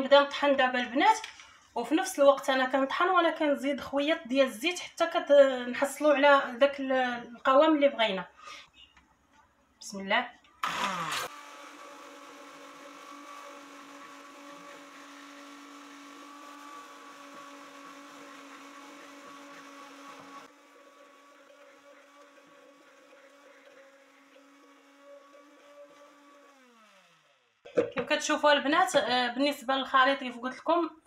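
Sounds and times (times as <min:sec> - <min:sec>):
immersion blender motor running: 0:10.6 - 0:27.6.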